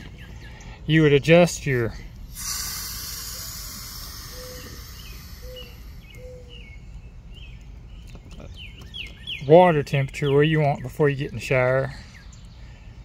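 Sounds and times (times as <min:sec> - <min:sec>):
birds chirping faintly: 0:00.0 - 0:13.0
water hissing from shower faucet: 0:02.3 - 0:06.2.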